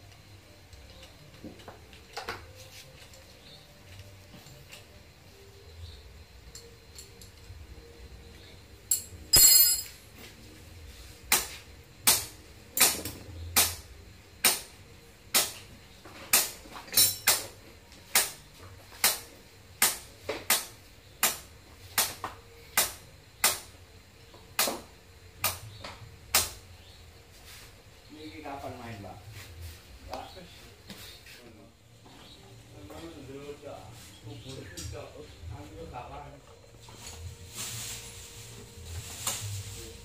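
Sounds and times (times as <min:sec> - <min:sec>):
tool clatter: 0:08.9 - 0:10.0.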